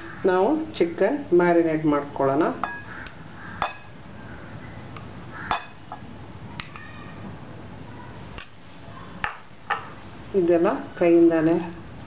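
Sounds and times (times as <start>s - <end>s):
glass clinking on glass: 5.5s - 5.8s.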